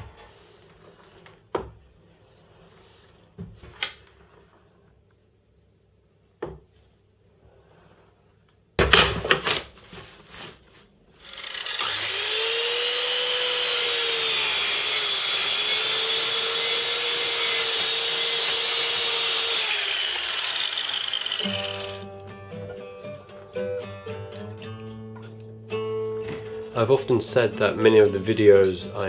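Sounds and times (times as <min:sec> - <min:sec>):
mitre saw motor whining: 0:11.2 - 0:22.2.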